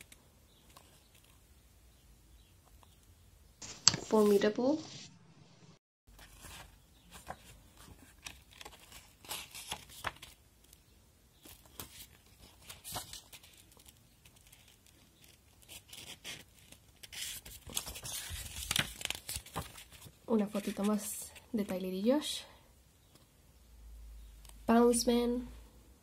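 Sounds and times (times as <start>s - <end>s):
paper pages rustling: 3.6s - 5.1s, 6.1s - 10.8s, 11.4s - 21.2s.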